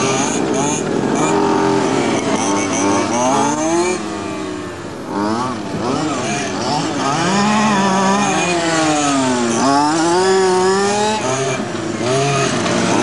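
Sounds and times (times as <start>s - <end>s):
two-stroke engines revving: 0.0s - 13.0s.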